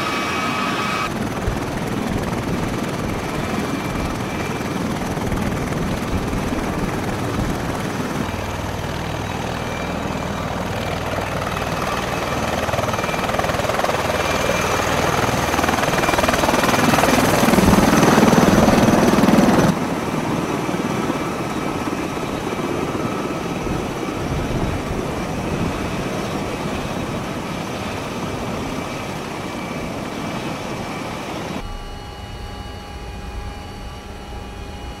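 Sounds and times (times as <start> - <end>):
tiltrotor aircraft engines and rotors: 0.0 - 35.0
steady humming tones: 23.6 - 35.0.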